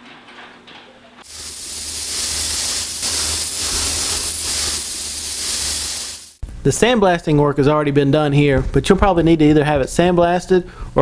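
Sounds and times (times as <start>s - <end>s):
sandblaster hissing: 1.2s - 6.4s.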